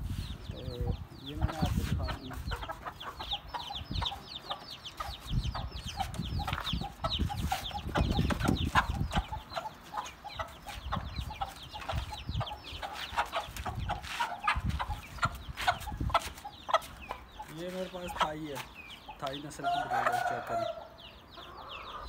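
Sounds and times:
chicks peeping: 0.0s - 22.0s
hens clucking: 0.4s - 22.0s
wooden coops thumping and rustling: 6.0s - 9.3s.

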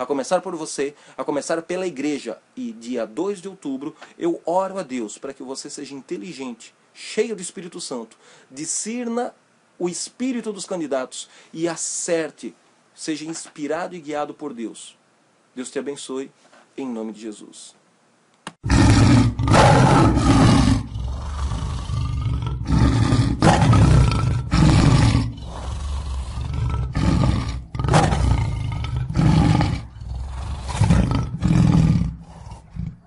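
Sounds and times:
lion roaring: 18.6s - 33.0s.

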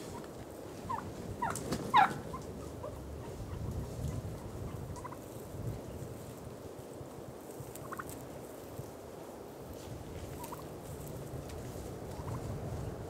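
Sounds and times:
wild turkey calling: 0.9s - 3.8s, 4.7s - 5.3s, 7.7s - 8.2s, 10.4s - 10.7s, 12.1s - 12.4s.

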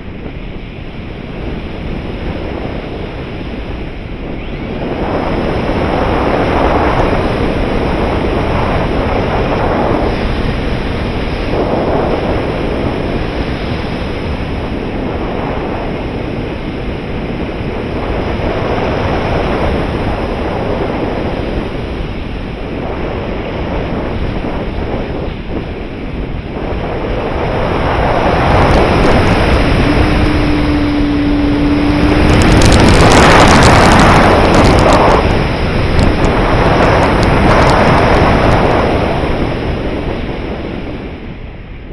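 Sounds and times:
airflow rushing over camera: 0.0s - 41.4s
steady hum: 26.5s - 39.1s.

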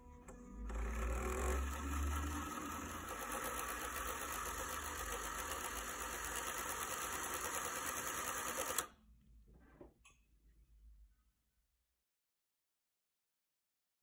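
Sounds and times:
sewing machine bobbin winder whirring: 0.5s - 9.0s.

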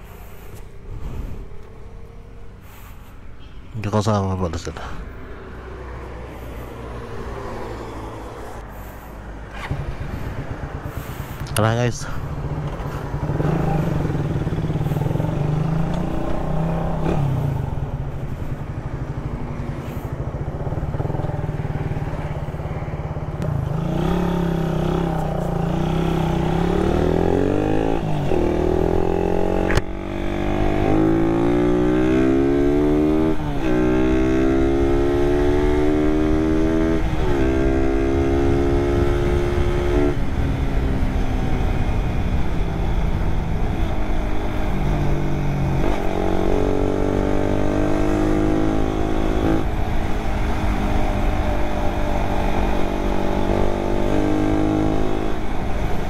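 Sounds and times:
motorcycle engine accelerating: 5.9s - 11.6s, 12.2s - 56.0s
sharp click: 29.7s - 29.9s.

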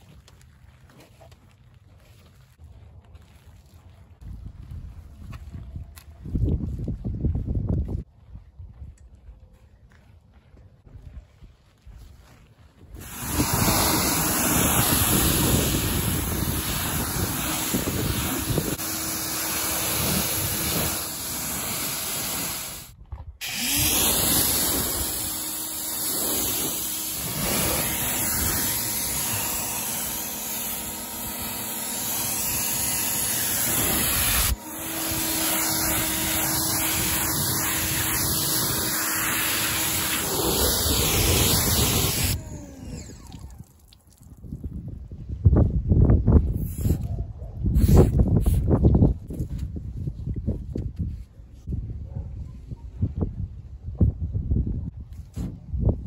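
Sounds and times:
pressure washer spraying water: 13.0s - 43.3s.

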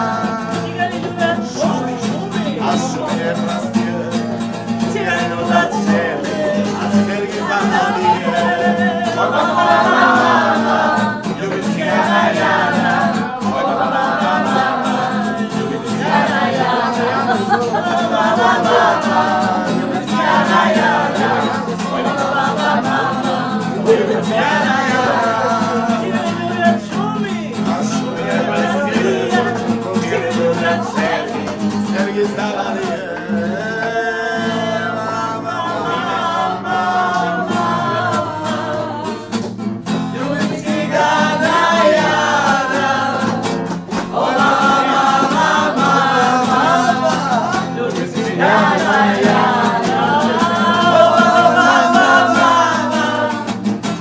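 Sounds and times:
woman singing: 0.0s - 4.0s, 4.8s - 27.3s, 33.0s - 39.5s
group singalong: 0.0s - 54.0s
strummed acoustic guitar: 0.0s - 54.0s.

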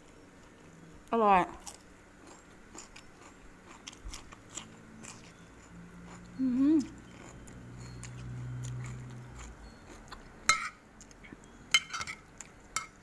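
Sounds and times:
low steady hum: 0.0s - 13.0s
metal spoon clinking on plate: 10.4s - 10.8s, 11.5s - 13.0s.

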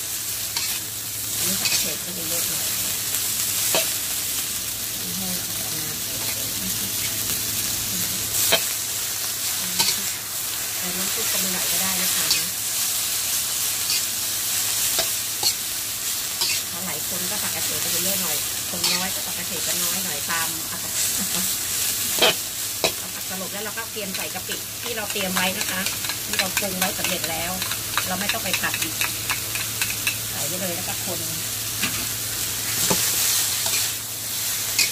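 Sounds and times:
vegetables sizzling in a wok: 0.0s - 34.9s
metal spatula scraping a pan: 16.4s - 16.7s, 33.6s - 33.9s.

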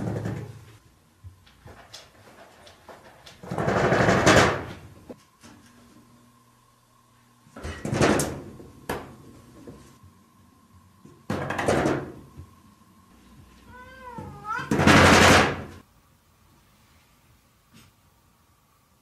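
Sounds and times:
sliding door rattling in frame: 3.4s - 4.8s.

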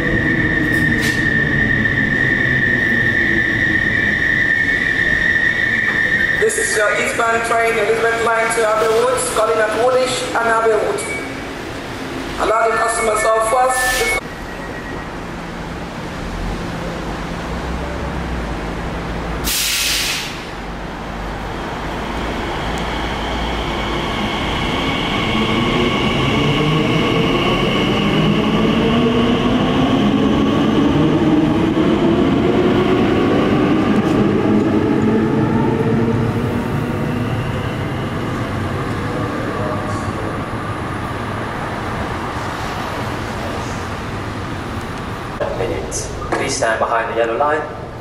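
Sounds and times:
short hiss: 19.5s - 20.4s.

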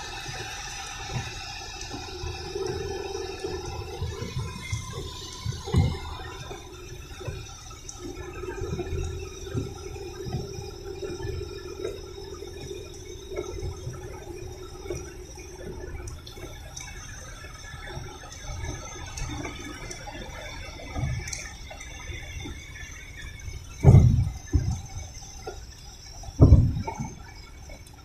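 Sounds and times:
rain and tyre noise on wet road: 0.0s - 12.0s.

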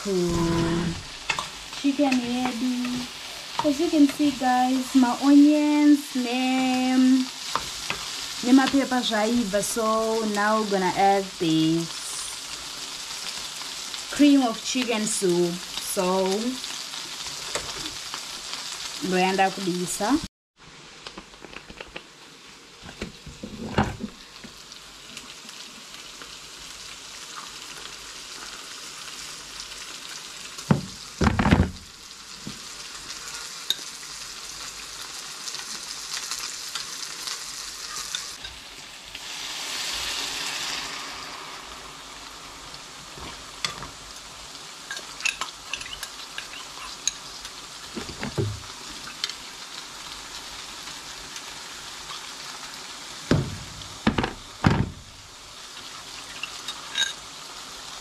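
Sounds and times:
food sizzling in frying pans: 0.0s - 58.0s
pans knocking: 53.3s - 55.1s.

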